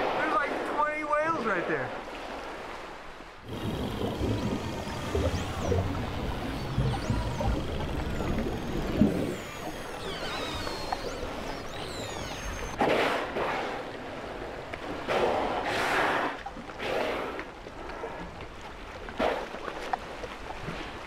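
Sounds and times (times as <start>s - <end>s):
high underwater whistles: 3.5s - 12.8s
killer whales blowing: 15.1s - 18.3s.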